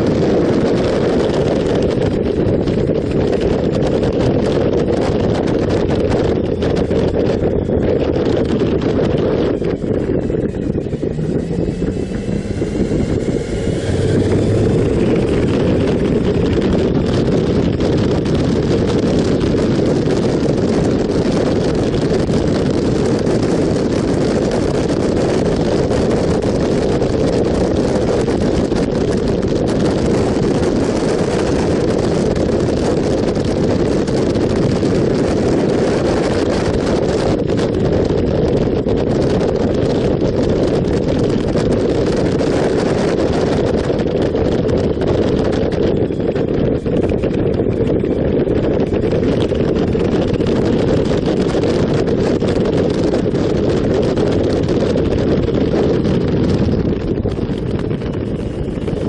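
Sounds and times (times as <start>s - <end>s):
motorcycle engine and road noise: 0.0s - 59.0s
wind rush over microphone: 0.0s - 59.0s.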